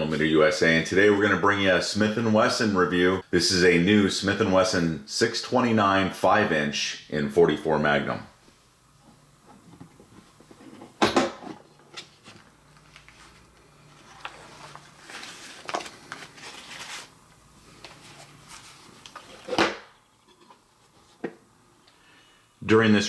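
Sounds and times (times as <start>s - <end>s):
paper rustling: 12.0s - 19.5s.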